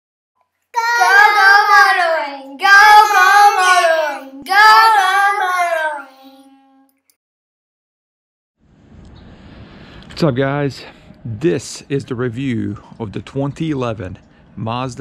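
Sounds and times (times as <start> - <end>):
high voice singing unaccompanied: 0.8 - 6.8.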